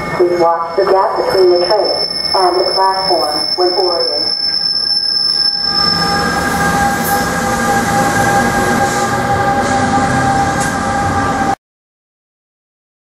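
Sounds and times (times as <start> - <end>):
electric locomotive whine: 0.0 - 11.6
wheels rumbling on rail: 4.3 - 11.6.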